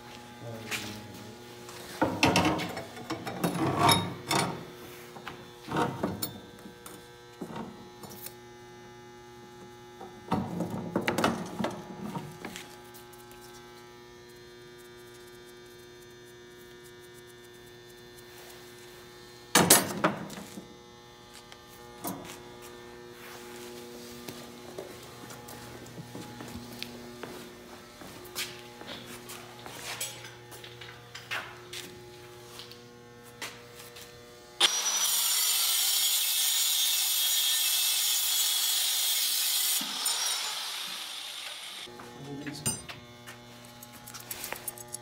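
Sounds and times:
electrical hum: 0:00.0 - 0:34.6, 0:41.9 - 0:45.0
metal tools clanking: 0:29.9 - 0:30.4, 0:42.6 - 0:43.0.

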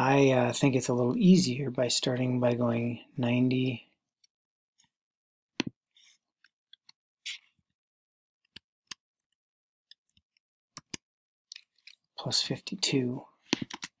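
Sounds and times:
mouse and keyboard clicks: 0:10.8 - 0:11.0, 0:13.5 - 0:14.0.

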